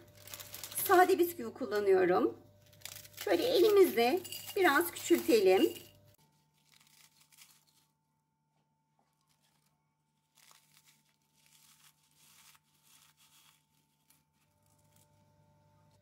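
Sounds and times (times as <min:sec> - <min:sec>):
faint crunching of biscuits: 0:00.0 - 0:00.9, 0:02.5 - 0:03.6, 0:06.2 - 0:16.0.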